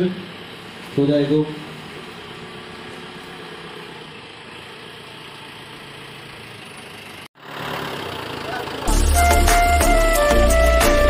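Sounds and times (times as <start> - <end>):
engine idling: 0.0 - 11.0.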